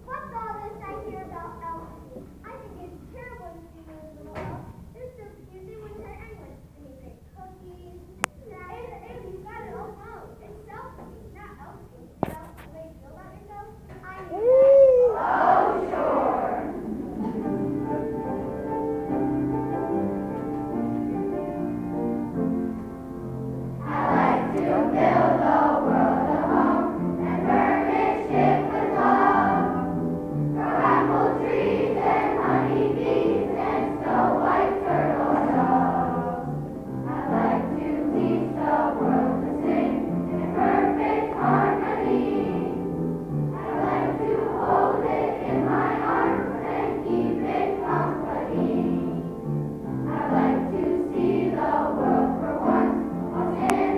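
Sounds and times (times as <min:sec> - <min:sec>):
children's choir singing: 0:14.8 - 0:20.8, 0:23.8 - 0:53.9
piano accompaniment: 0:15.2 - 0:53.9.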